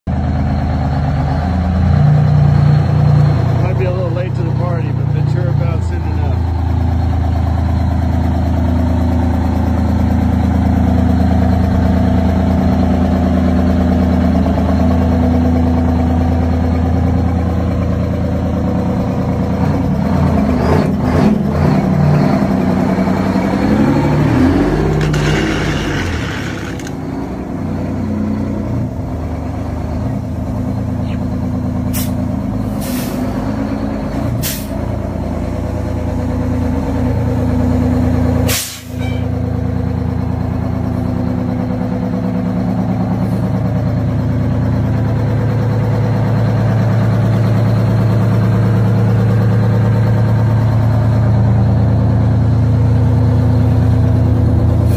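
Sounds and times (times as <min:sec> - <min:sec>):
diesel truck engine idling: 0:00.1 - 0:54.9
sharp air hisses: 0:38.5 - 0:39.0.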